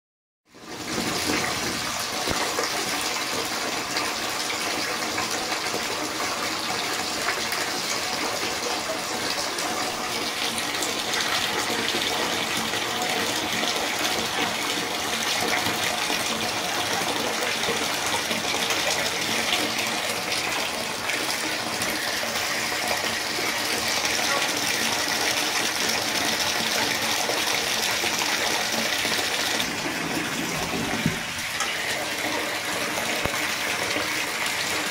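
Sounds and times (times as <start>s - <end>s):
water running into bathtub: 0.5s - 34.9s.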